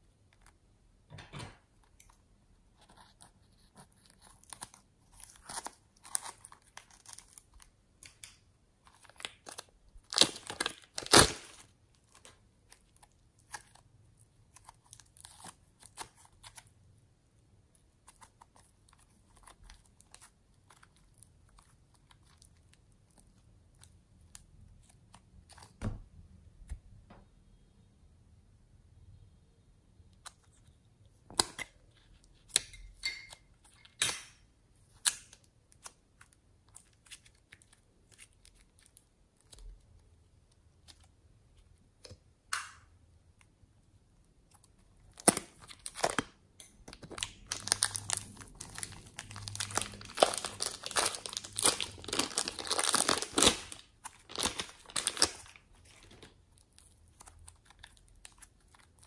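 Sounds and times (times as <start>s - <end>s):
plastic crinkling: 2.9s - 16.7s, 44.5s - 59.0s
slime squishing: 43.4s - 59.0s.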